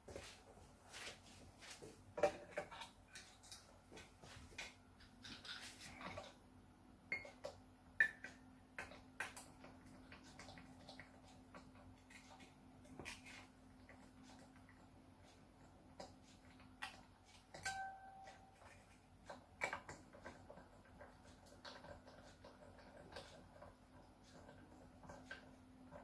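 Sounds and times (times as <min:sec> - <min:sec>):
faint steady hum: 0:00.0 - 0:26.0
metallic pings from strings: 0:17.6 - 0:18.5.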